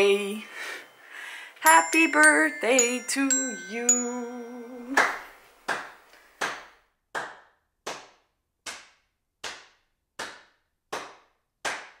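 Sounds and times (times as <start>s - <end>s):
slow hand claps: 4.9s - 12.0s.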